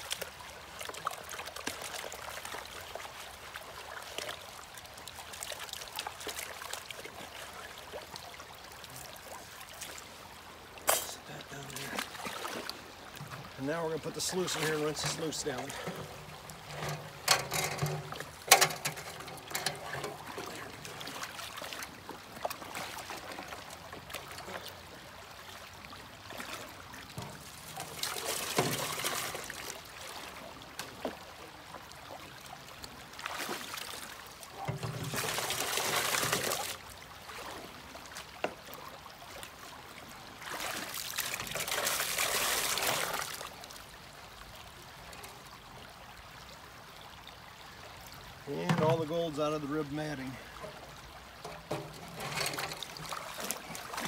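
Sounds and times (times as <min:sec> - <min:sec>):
water pouring into a bucket: 0:10.9 - 0:24.7, 0:26.2 - 0:31.2, 0:33.2 - 0:37.6, 0:40.4 - 0:43.6
metal sluice knocking: 0:13.2 - 0:21.3, 0:27.0 - 0:29.6, 0:34.6 - 0:36.8, 0:48.6 - 0:49.1, 0:51.4 - 0:54.0.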